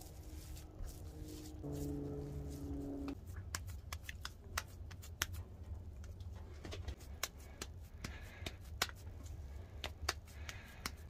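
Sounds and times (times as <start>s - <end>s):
hands patting ground meat: 2.5s - 6.2s, 6.9s - 11.0s.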